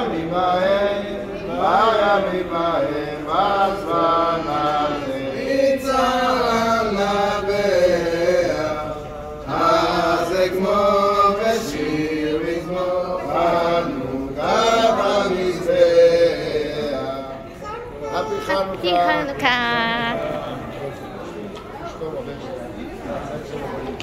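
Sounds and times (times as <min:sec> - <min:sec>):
voices chanting a song: 0:00.0 - 0:20.8.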